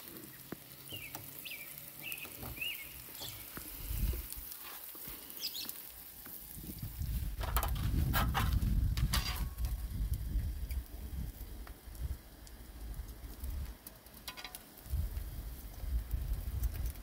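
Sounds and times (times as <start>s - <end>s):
meat sizzling on grill pan: 0.0s - 17.0s
bird chirping: 0.9s - 3.5s, 5.4s - 5.8s.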